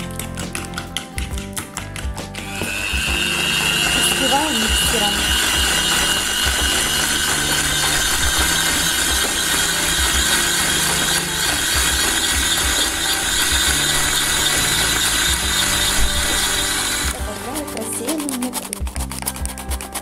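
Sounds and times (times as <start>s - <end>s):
electric hand mixer whining: 0.0s - 20.0s.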